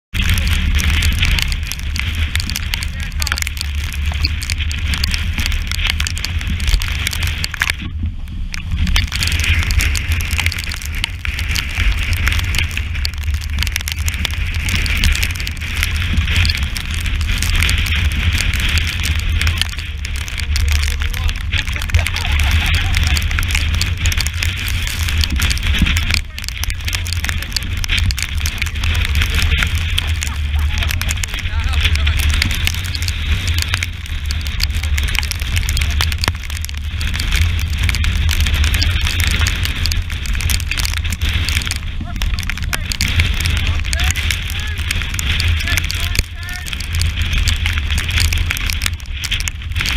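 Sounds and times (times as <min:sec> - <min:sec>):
wind buffeting microphone: 0:00.1 - 0:49.9
sea spray spattering on camera: 0:08.6 - 0:49.9
rushing water hiss: 0:08.7 - 0:48.6.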